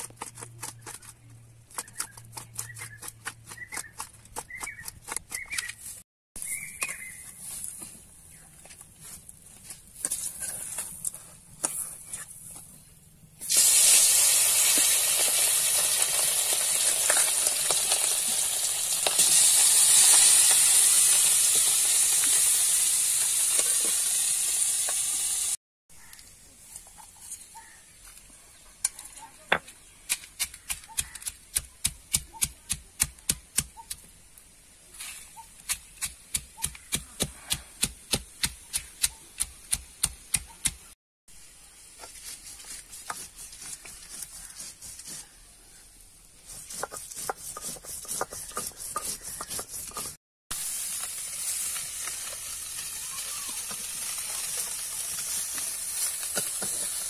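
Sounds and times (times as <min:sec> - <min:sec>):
fish sizzling in hot oil: 0:13.4 - 0:25.6, 0:50.5 - 0:57.0.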